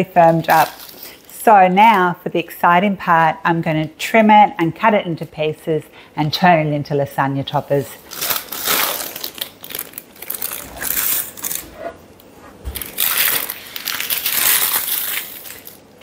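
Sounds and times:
wrapping crinkling: 0.0 - 1.4, 7.6 - 16.0.

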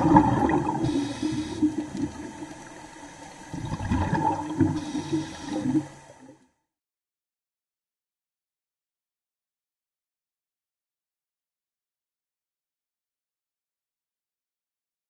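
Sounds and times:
underwater bubbling and gurgling: 0.0 - 6.6.

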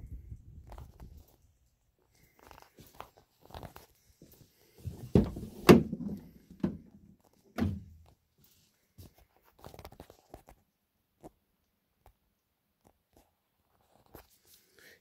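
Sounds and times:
dull knocks and clunks: 4.9 - 7.0.

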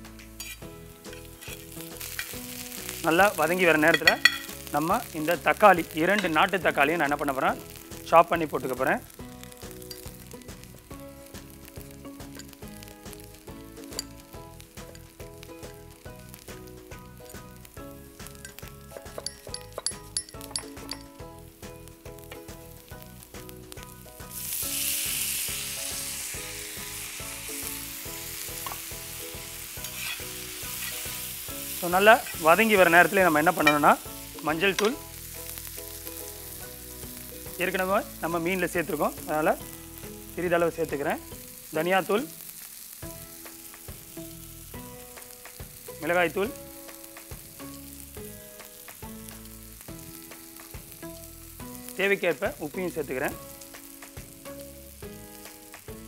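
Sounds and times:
food sizzling in hot oil: 0.0 - 56.0
spatula stirring in pan: 29.8 - 31.2.

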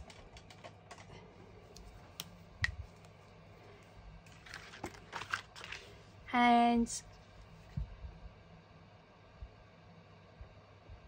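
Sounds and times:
hands clicking and tapping supplies: 0.0 - 3.2
card rustling: 4.3 - 6.1.

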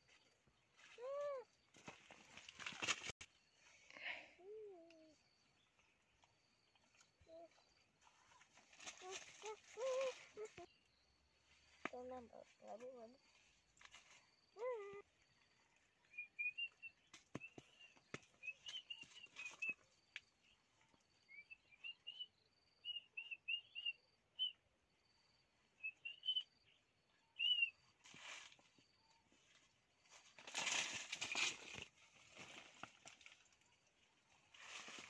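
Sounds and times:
rustling over dry leaves: 8.0 - 10.7, 30.1 - 35.0
small birds chirping: 14.1 - 29.4.

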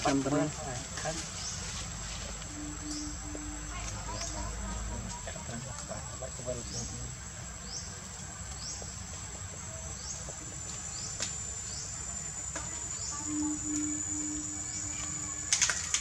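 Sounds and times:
insects shrilling: 0.0 - 16.0.

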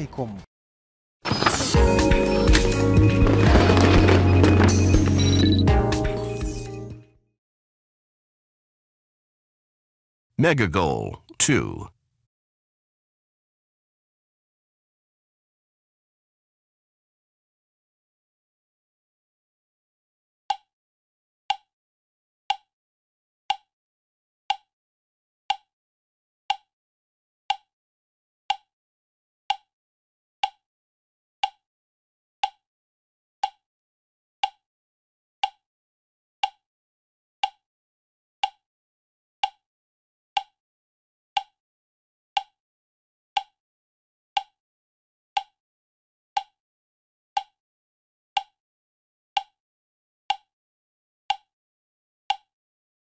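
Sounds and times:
countdown timer ticking: 10.4 - 11.9.

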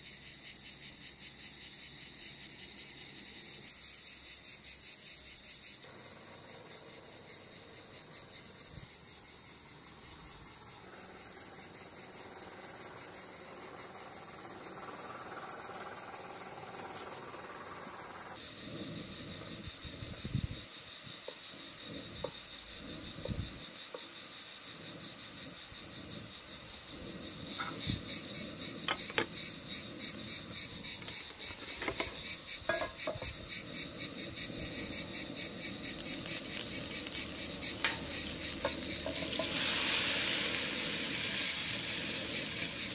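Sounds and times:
crickets chirping: 0.0 - 42.9
spatula knocking frying pan: 31.8 - 33.4, 37.7 - 39.7.

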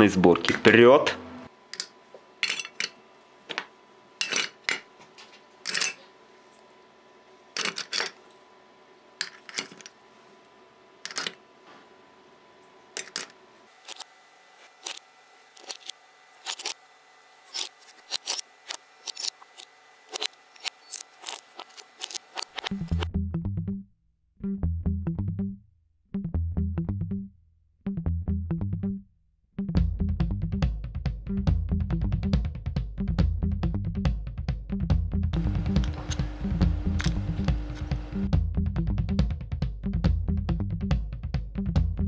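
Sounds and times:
metal parts clinking: 1.8 - 3.0, 4.2 - 4.8, 5.6 - 6.0, 7.6 - 8.3, 9.2 - 10.0, 11.1 - 11.4, 13.0 - 14.0, 15.6 - 16.8, 17.5 - 18.4, 19.0 - 19.4, 20.1 - 22.7.

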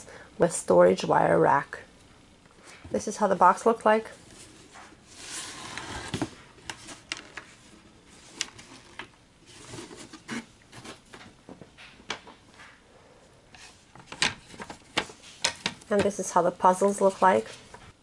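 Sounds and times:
cardboard rubbing and sliding: 4.3 - 11.1.

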